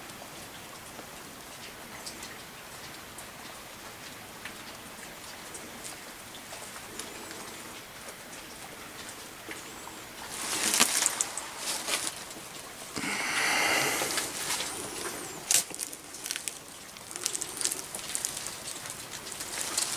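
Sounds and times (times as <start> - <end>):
rustling of dry leaf litter: 9.6 - 19.9.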